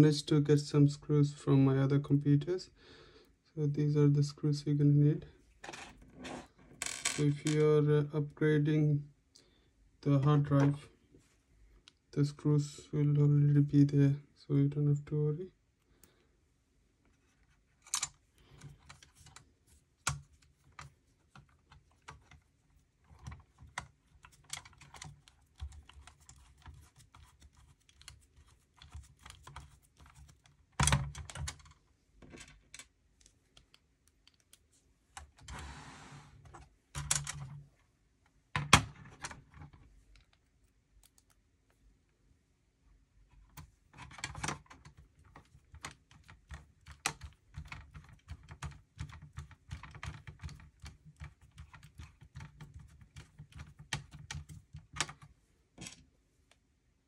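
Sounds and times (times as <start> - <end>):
short scrape: 35.5 - 36.4.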